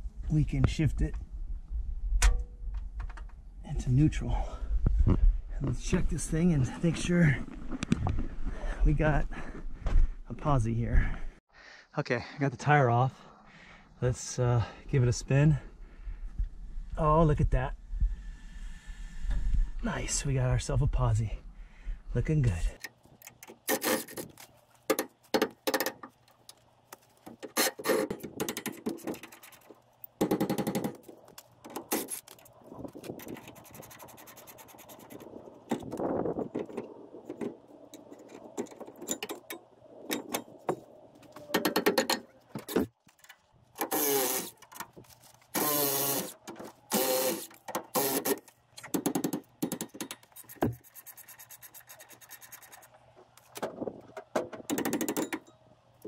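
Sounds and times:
cordless power tool running: 45.6s - 46.3s, 46.9s - 48.3s.

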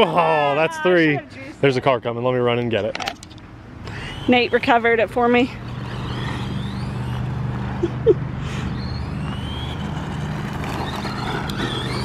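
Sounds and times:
steady low hum: 3.3s - 12.0s
rc car electric motor whining: 3.9s - 7.8s, 8.5s - 12.0s.

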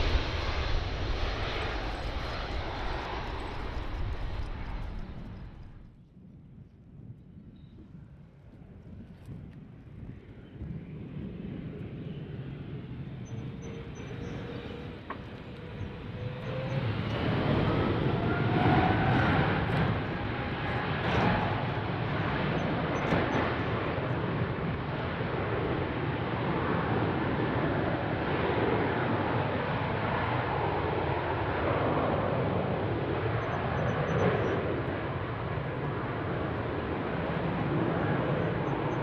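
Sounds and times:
rising engine whine: 0.0s - 6.0s, 13.1s - 23.8s
jet airliner engine roar: 0.0s - 39.0s.

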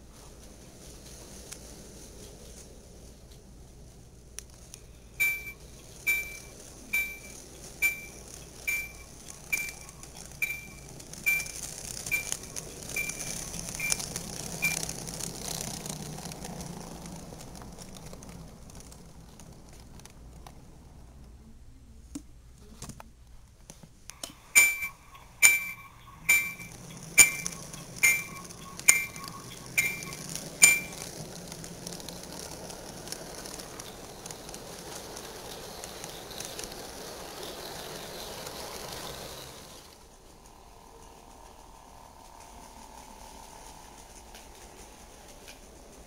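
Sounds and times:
model train humming on track: 0.0s - 21.8s, 24.1s - 46.0s
bell-like dings: 5.2s - 11.6s, 24.6s - 31.0s.

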